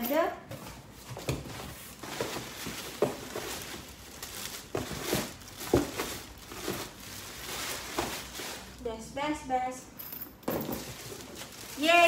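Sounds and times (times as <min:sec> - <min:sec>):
plastic wrapping crinkling: 0:01.8 - 0:08.8, 0:10.8 - 0:12.0.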